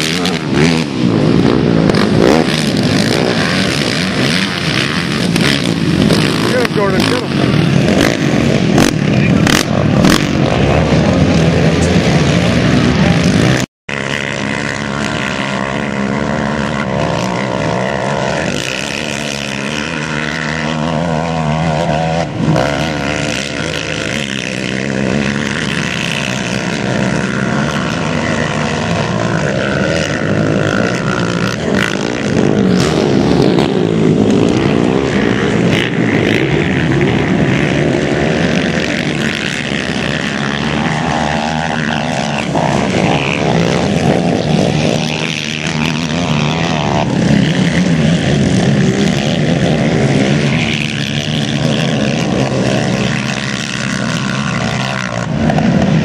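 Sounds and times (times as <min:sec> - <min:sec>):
quad engines revving: 0:00.0 - 0:56.0.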